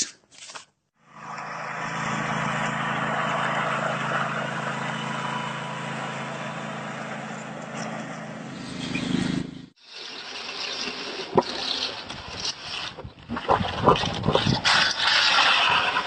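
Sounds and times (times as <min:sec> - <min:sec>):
truck engine droning: 0:01.0 - 0:09.8.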